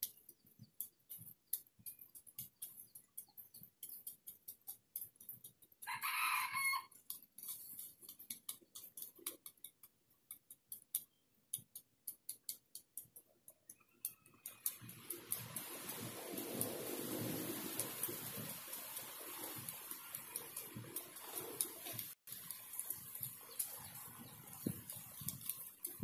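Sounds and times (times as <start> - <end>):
short dry clicks and rustles: 0.0 - 11.0, 14.0 - 26.0
rooster crowing: 5.8 - 6.9.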